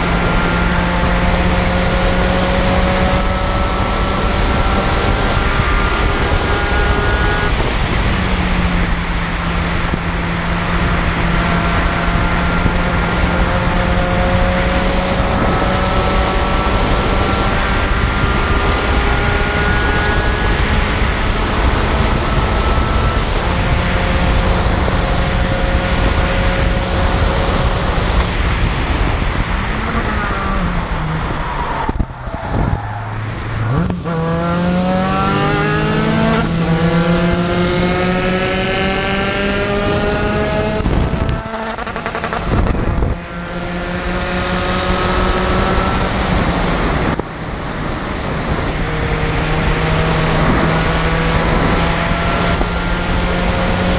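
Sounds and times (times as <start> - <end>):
race car engine revving: 0.0 - 53.9.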